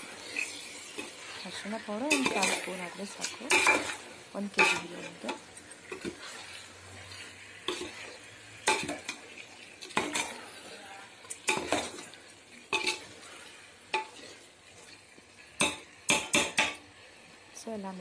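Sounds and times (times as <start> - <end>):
spoon scraping metal pot: 0.1 - 10.5, 12.7 - 13.2.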